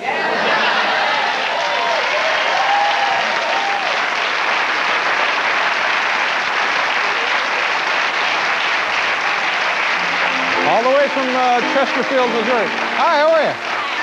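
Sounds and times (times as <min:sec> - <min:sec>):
audience applauding: 0:00.2 - 0:14.0
person speaking: 0:10.2 - 0:14.0.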